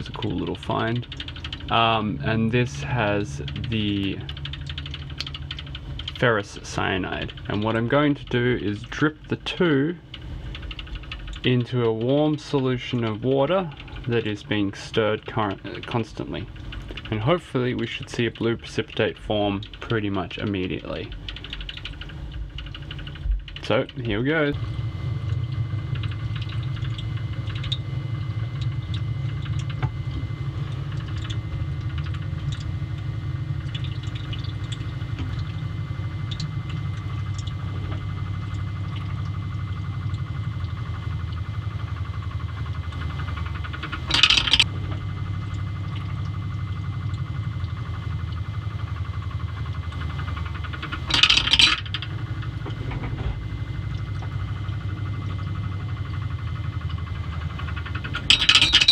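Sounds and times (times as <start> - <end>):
stirrer motor humming: 0.0 - 58.9
rattling clinks: 44.1 - 44.6, 51.1 - 52.0, 58.1 - 58.9.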